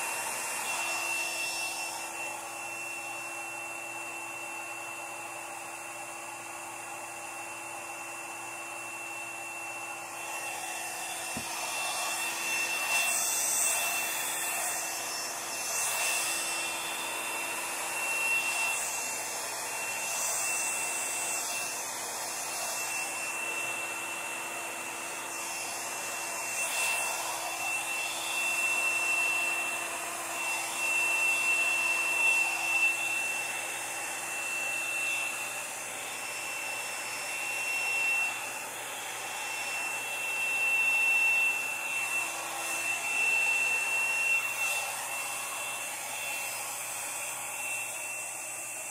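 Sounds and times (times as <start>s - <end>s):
hair dryer blowing air: 0.0s - 48.9s.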